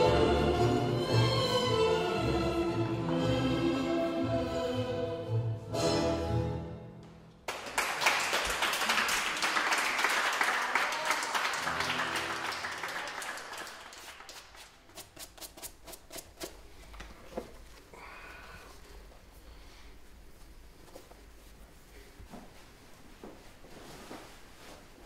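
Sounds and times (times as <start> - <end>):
tango music: 0.0 - 7.3
audience applause: 7.5 - 14.7.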